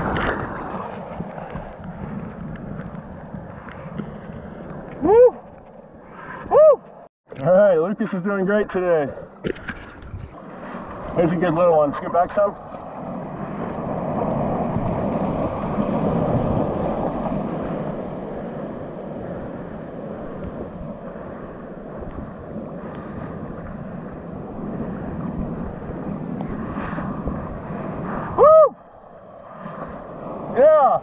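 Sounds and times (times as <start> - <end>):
surf rushing and washing: 0.0 - 31.0
wind on microphone: 0.0 - 31.0
person whooping: 5.0 - 5.5, 6.5 - 6.8, 28.3 - 28.8.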